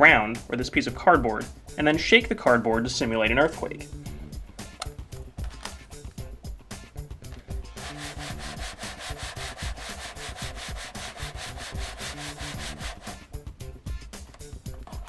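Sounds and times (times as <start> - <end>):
cardboard scraping on tabletop: 7.8 - 13.2.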